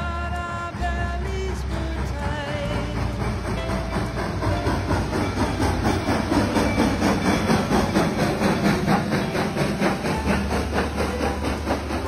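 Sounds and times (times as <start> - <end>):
moving train rumble: 0.0 - 12.0
steam locomotive exhaust beats: 0.0 - 12.0.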